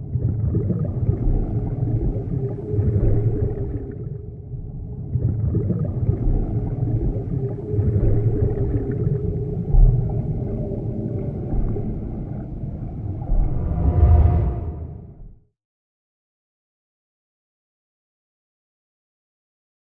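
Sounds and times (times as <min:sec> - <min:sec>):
deep rumbling drone: 0:00.0 - 0:15.4
deep low hit: 0:13.2 - 0:15.4.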